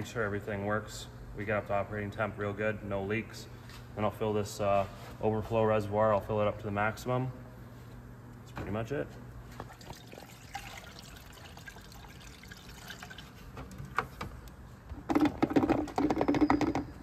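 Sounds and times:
coolant pouring with gulps: 0:09.6 - 0:14.0.

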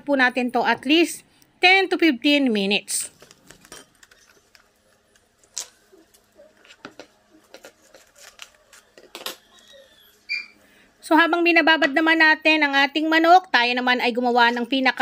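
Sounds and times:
cling wrap crinkling and crackling: 0:03.1 - 0:10.2.

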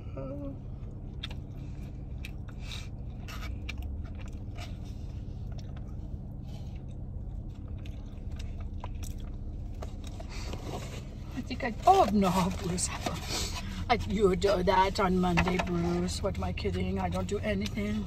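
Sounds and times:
steady low hum: 0:00.0 - 0:18.0
person chewing and crunching food: 0:00.7 - 0:11.3.

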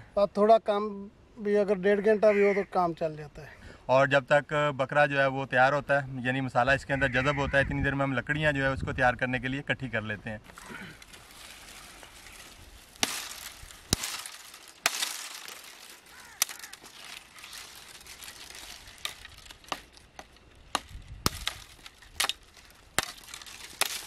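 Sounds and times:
twigs rustling: 0:10.4 - 0:24.0
dry branches cracking: 0:10.5 - 0:24.0
hatchet chopping branches: 0:12.9 - 0:24.0.

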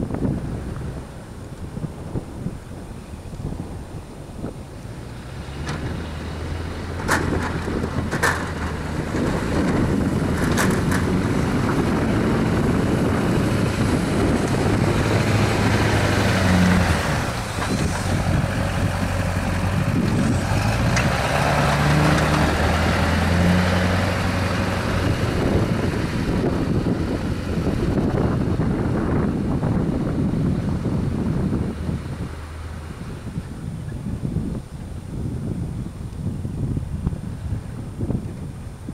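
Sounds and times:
diesel engine under load: 0:00.0 - 0:38.9
plow blade scraping: 0:04.8 - 0:33.7.

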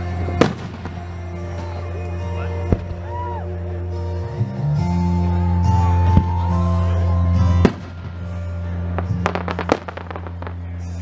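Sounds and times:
music from loudspeakers: 0:00.0 - 0:11.0
firework crackling pops: 0:09.0 - 0:10.7.

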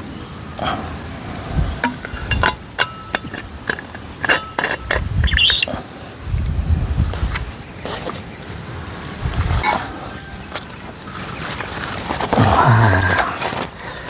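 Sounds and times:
metal flask clicks and clinks: 0:01.8 - 0:05.7
high squeak: 0:05.2 - 0:05.8.

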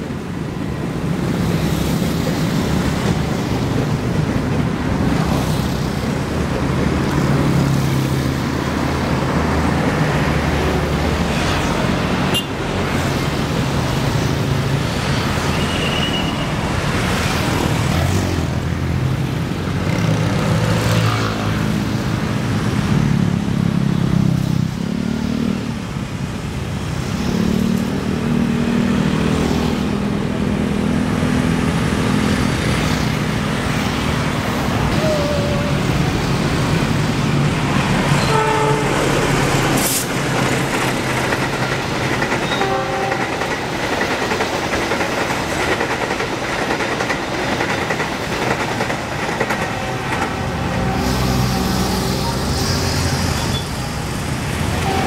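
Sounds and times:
train wheels on rails: 0:00.0 - 0:23.6, 0:24.2 - 0:55.0
diesel locomotive engine rumble: 0:29.8 - 0:55.0.

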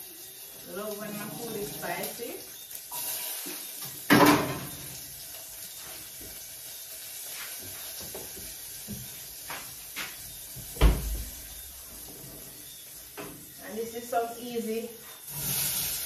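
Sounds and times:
sausage sizzling in oil: 0:00.0 - 0:16.0.

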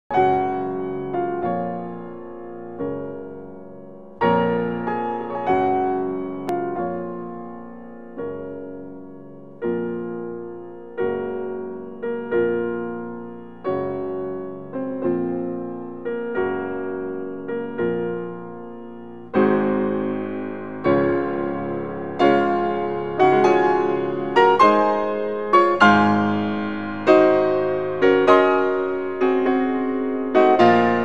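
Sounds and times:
slow solo piano: 0:00.1 - 0:31.0.

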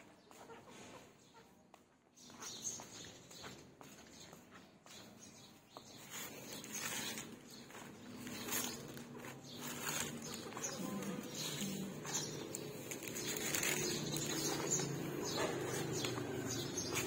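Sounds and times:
cabbage leaves rustling: 0:06.1 - 0:15.0.

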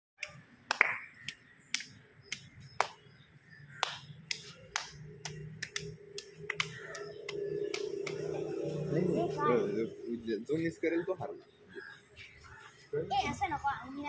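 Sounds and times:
hands clapping: 0:00.2 - 0:03.0, 0:03.8 - 0:08.4.

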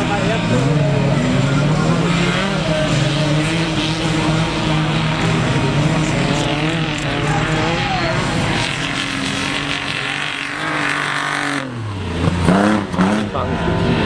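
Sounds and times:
race car engines revving: 0:00.0 - 0:14.0.

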